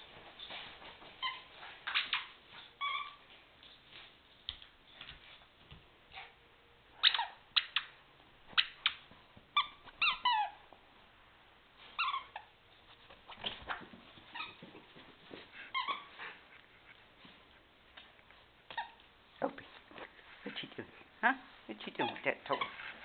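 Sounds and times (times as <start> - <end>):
squeaky dog toy squeaking: 7.0 - 7.9, 9.6 - 10.6, 12.0 - 12.6, 15.7 - 16.1, 21.9 - 22.8.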